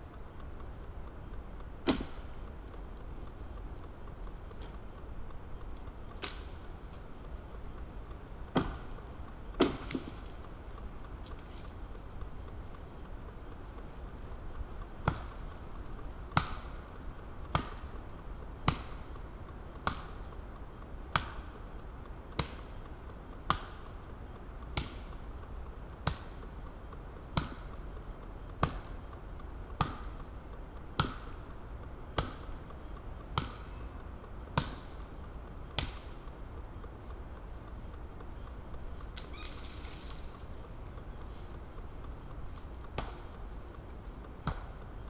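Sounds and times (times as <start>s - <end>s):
axe chopping wood: 1.8s - 2.2s, 9.6s - 10.2s.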